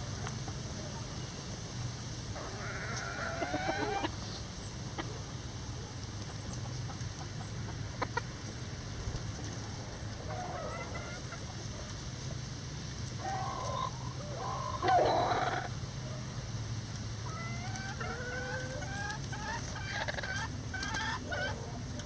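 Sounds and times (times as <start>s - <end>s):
chickens calling: 2.3s - 22.0s.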